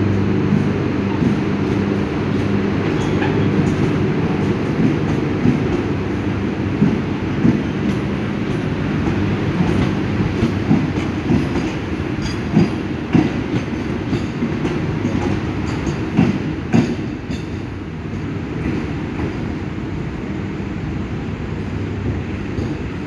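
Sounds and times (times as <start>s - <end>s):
train coaches rumbling: 0.0s - 23.0s
wheels clicking over rail joints: 6.7s - 17.6s.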